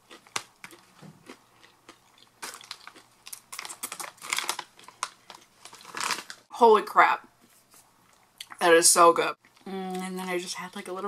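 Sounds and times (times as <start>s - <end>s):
popcorn being chewed: 0.0s - 6.4s.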